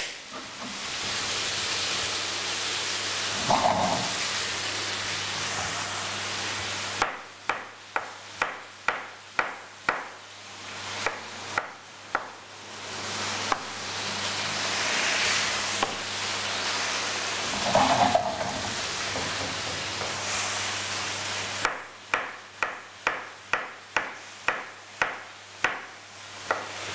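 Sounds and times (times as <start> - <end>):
vegetables sizzling in a pan: 0.0 - 26.9
knife chopping on cutting board: 7.0 - 10.2, 11.0 - 12.4, 21.6 - 25.9, 26.5 - 26.8.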